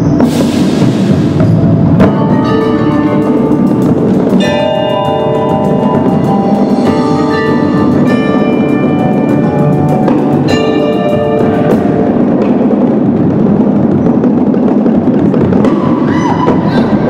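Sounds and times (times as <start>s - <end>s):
marching bass drums and snare roll: 0.0s - 17.0s
rapid drum strokes: 0.0s - 17.0s
marimbas and bells ringing: 1.9s - 12.9s.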